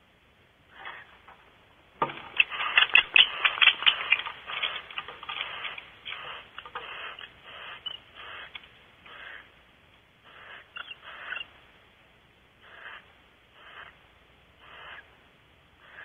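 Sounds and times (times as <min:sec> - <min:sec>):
owl screeching and hissing: 0:00.7 - 0:01.2, 0:02.2 - 0:09.6, 0:10.2 - 0:11.5, 0:12.6 - 0:14.0, 0:14.6 - 0:15.1, 0:15.8 - 0:16.0.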